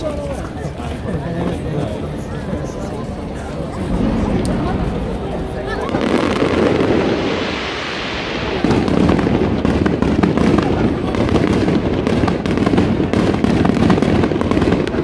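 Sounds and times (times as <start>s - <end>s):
fireworks crackling and popping: 3.7s - 15.0s.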